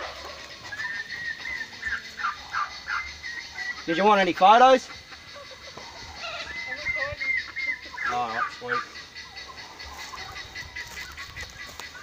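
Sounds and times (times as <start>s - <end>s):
faint poultry calls: 0.0s - 12.0s
loud wavering fowl call: 4.8s - 12.0s.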